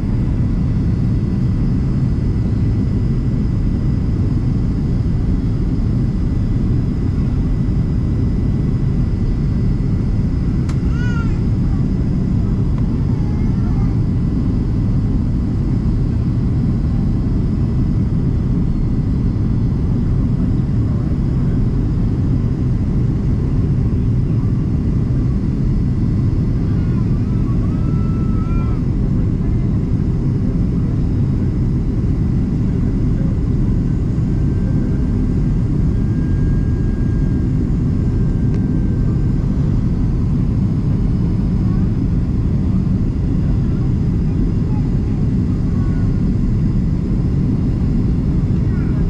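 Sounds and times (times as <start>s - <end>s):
airplane cabin engine rumble: 0.0s - 49.0s.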